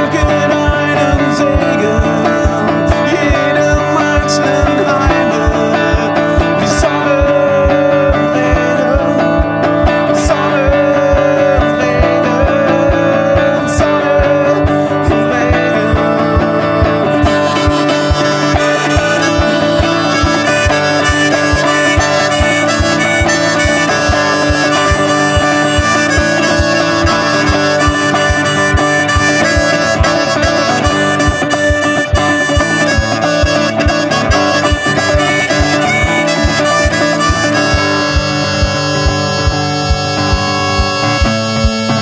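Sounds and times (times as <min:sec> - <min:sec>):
acoustic guitar melody: 0:00.0 - 0:42.0
steady low beat: 0:00.0 - 0:42.0.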